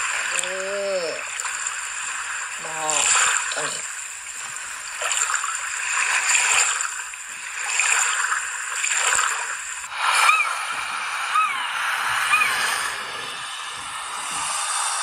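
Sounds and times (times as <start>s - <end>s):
waves washing onto beach: 0.0s - 15.0s
gulls crying: 9.9s - 15.0s.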